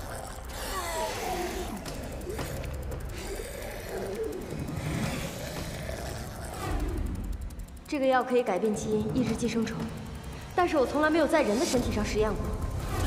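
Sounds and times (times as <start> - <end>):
man moaning creature-like: 0.0 - 7.3.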